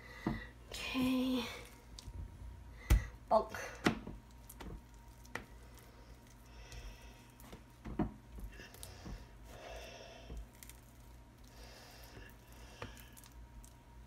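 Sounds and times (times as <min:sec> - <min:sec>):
low steady hum: 0:00.0 - 0:14.0
fingers spreading filling: 0:04.2 - 0:14.0.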